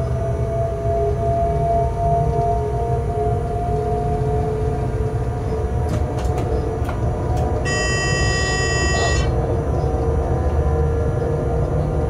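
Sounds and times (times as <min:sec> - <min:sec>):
humming tone: 0:00.0 - 0:05.8, 0:07.3 - 0:12.0
locomotive rumble: 0:00.0 - 0:12.0
shrill high tone: 0:07.7 - 0:09.4.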